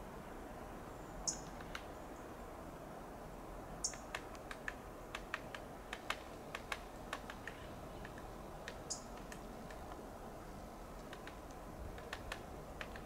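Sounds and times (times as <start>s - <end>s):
woodpecker tapping on bark: 3.9s - 10.0s, 11.0s - 13.0s.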